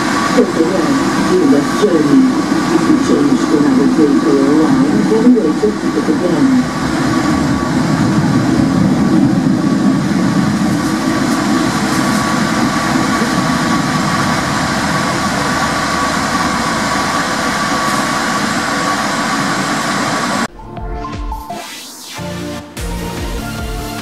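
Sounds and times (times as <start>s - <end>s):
tram rumbling on track: 0.0s - 20.5s
thin steady whine: 0.0s - 22.4s.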